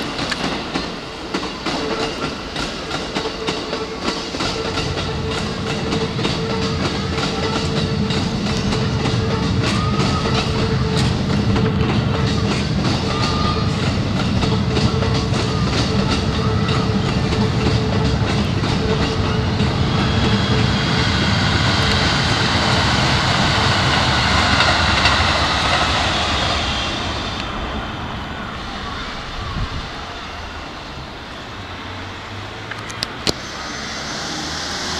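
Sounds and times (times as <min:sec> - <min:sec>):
train wheels clattering over rail joints: 0:00.0 - 0:27.5.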